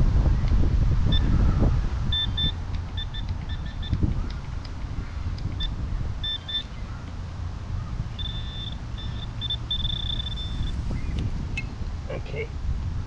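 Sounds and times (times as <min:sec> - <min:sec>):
wind rumble on microphone: 0:00.0 - 0:13.0
metal detector beeps: 0:02.1 - 0:04.0, 0:05.6 - 0:06.8, 0:08.2 - 0:10.8.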